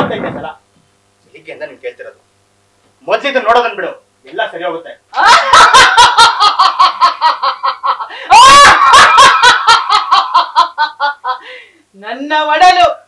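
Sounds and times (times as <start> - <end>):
high-pitched cackling laugh: 5.2 - 11.4
shrill shriek: 8.3 - 9.6.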